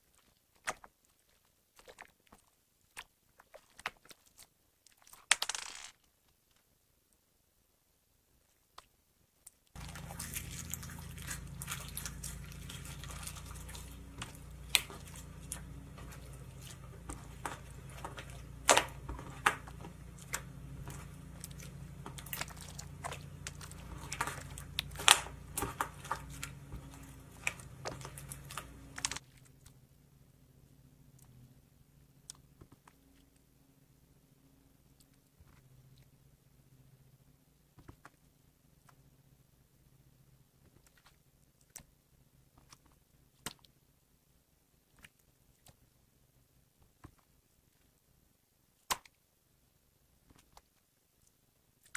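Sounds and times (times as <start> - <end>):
steady low hum: 9.8 - 40.6.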